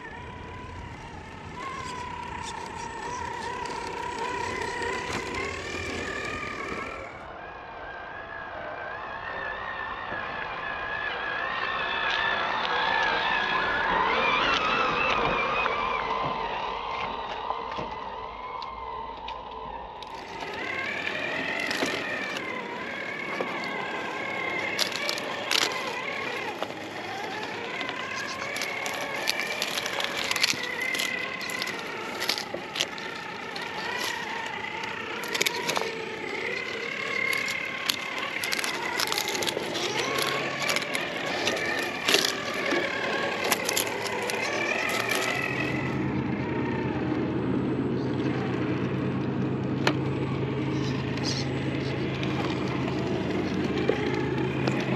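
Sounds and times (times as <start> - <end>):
tyres crunching on rock: 0.0 - 7.3, 20.0 - 46.0
electric motor whining: 0.0 - 7.4, 18.6 - 54.9.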